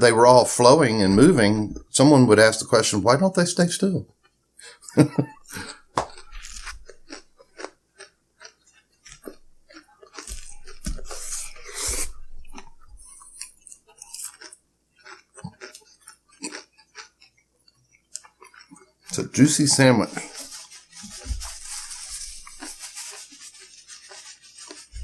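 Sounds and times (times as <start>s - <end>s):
people chewing and eating: 4.2s - 25.0s
small crunches: 5.4s - 25.0s.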